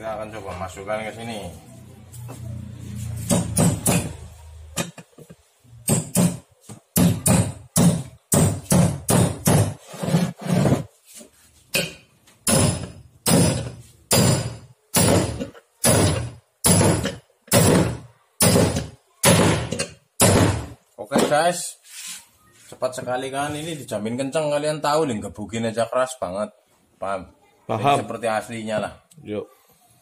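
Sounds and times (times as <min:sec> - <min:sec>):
hammer striking metal: 0:03.2 - 0:05.0, 0:05.8 - 0:09.8, 0:11.7 - 0:20.8.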